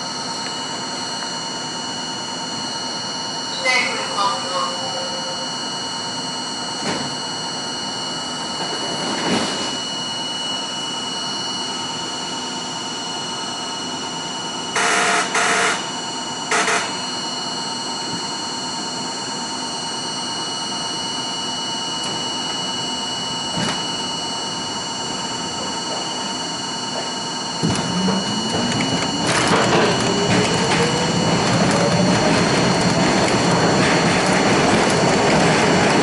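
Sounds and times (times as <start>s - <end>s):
subway car equipment humming: 0.0s - 36.0s
traction motors whine rising: 0.0s - 36.0s.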